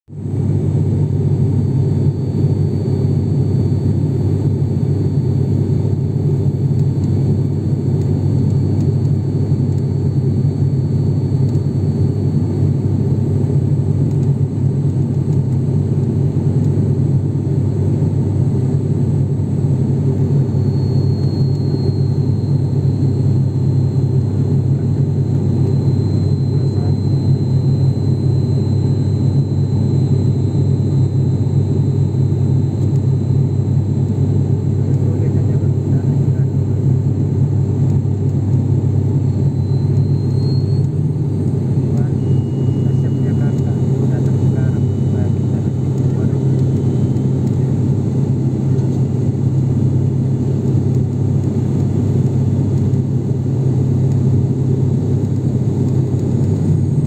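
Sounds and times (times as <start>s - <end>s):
propeller engine drone: 0.1s - 57.0s
thin high whine: 18.0s - 57.0s.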